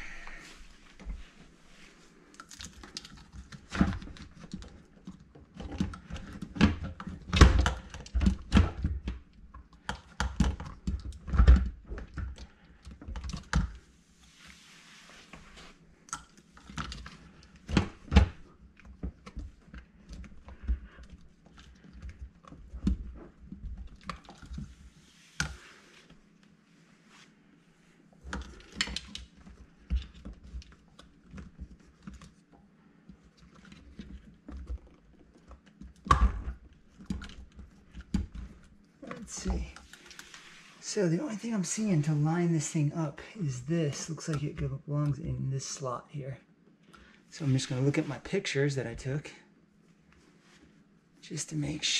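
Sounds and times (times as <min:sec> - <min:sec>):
plastic parts clicking and knocking: 0:02.4 - 0:13.8, 0:28.2 - 0:40.2
soft rustling hisses: 0:13.8 - 0:16.0, 0:24.7 - 0:28.1, 0:39.0 - 0:43.4.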